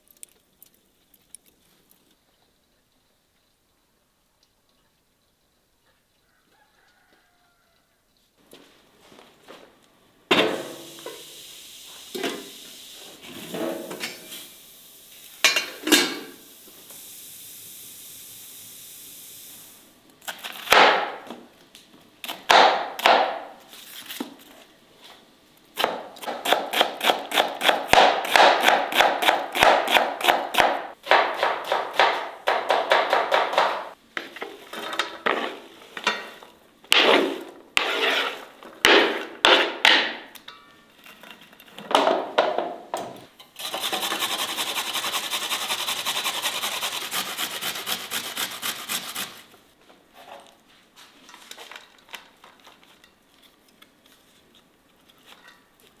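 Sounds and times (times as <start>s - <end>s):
pot and lid clanking: 15.4s - 16.4s
knife chopping on wooden board: 25.8s - 33.9s.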